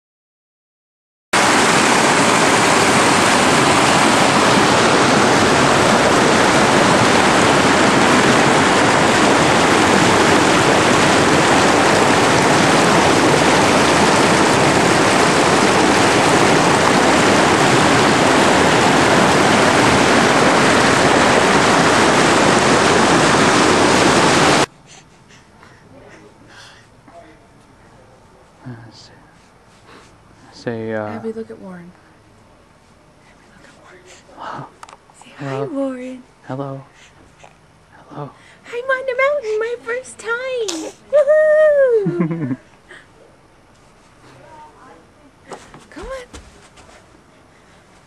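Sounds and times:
stream rushing over boulders: 0:01.4 - 0:24.7.

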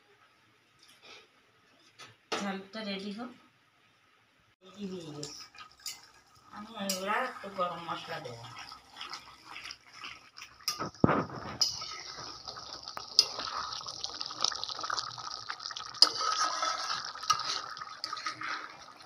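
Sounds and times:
curry bubbling in a pot: 0:04.6 - 0:19.0
ladle stirring: 0:05.1 - 0:19.0.

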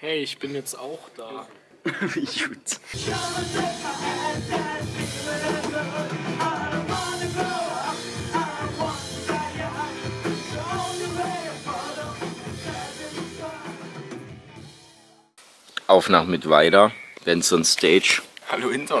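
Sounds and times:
rock music with singing: 0:03.0 - 0:15.2.

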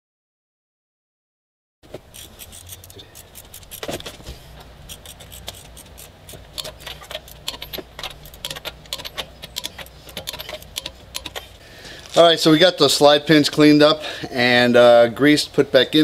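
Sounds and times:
ratchet wrench clicking: 0:02.1 - 0:04.1, 0:04.8 - 0:11.6
metallic socket clinks: 0:04.8 - 0:11.6.

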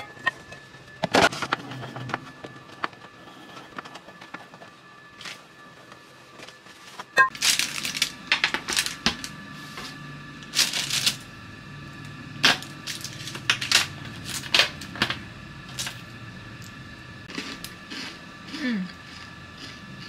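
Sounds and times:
bread sticks clicking and crackling: 0:07.3 - 0:09.4, 0:10.4 - 0:11.3.

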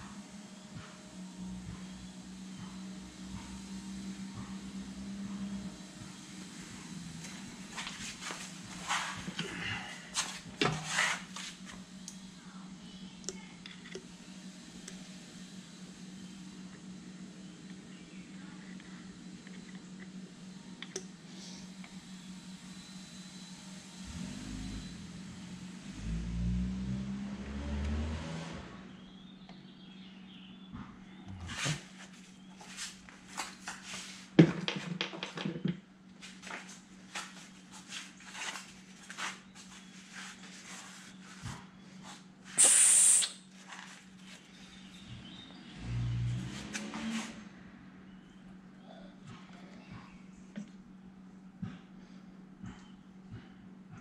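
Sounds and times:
steady low hum: 0:00.0 - 0:34.9, 0:35.6 - 0:54.0
loud hiss: 0:42.6 - 0:43.4.

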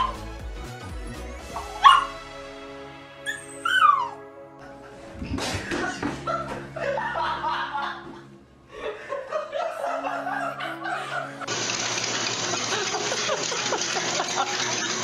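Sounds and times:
background music: 0:00.0 - 0:15.0
people laughing: 0:04.6 - 0:11.6, 0:12.5 - 0:15.0.

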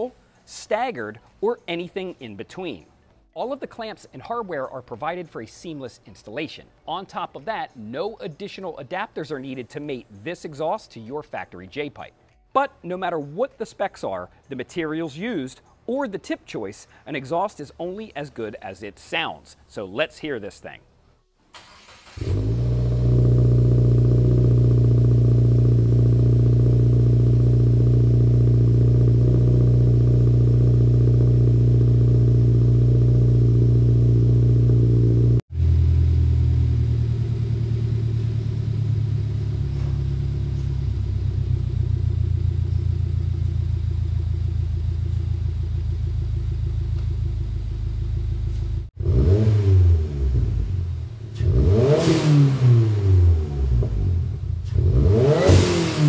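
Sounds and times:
car engine revving: 0:21.6 - 0:56.0
car engine idling: 0:22.0 - 0:51.8.

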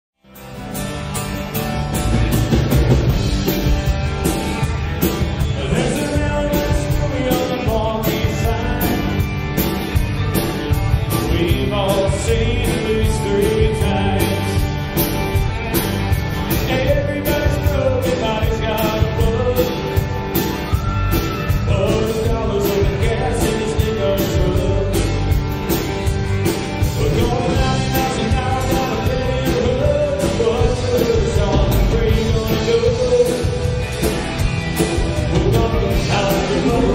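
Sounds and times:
country rock band playing: 0:00.2 - 0:36.9
man singing: 0:05.4 - 0:09.4, 0:11.0 - 0:15.0, 0:16.4 - 0:20.2, 0:21.2 - 0:25.4, 0:26.8 - 0:34.2, 0:34.8 - 0:36.9.

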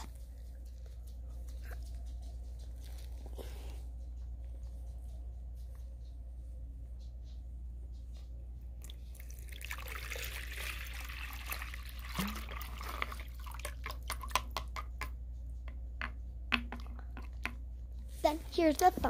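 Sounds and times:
water pouring into plastic tub: 0:08.8 - 0:14.3.

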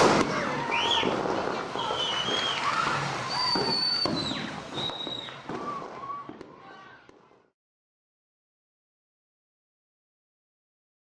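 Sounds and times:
fireworks crackling and popping: 0:00.0 - 0:07.5
high firework whistles: 0:00.1 - 0:06.4.

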